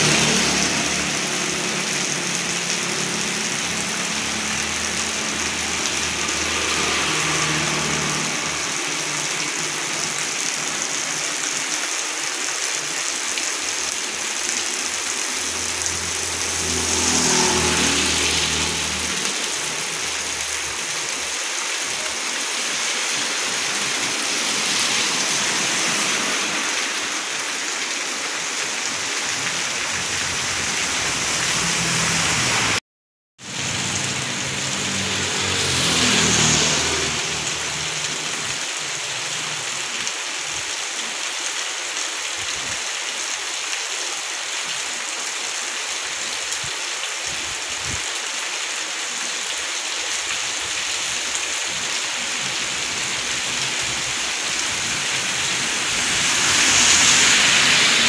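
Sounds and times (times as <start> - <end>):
motorbike passing: 0.0 - 11.2, 14.5 - 32.8, 33.5 - 39.7, 50.7 - 58.0
heavy rain pouring: 0.0 - 32.8, 33.4 - 58.0.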